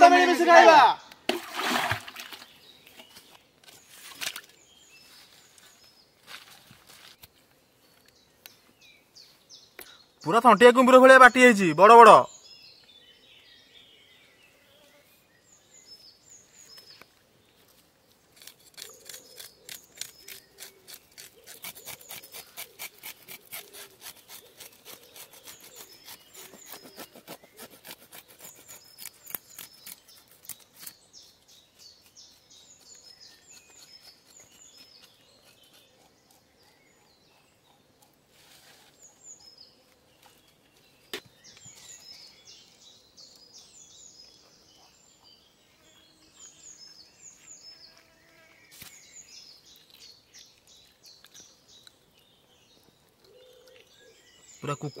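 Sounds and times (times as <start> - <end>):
birds chirping: 0.0 - 55.0
knife scraping fish: 18.4 - 31.0.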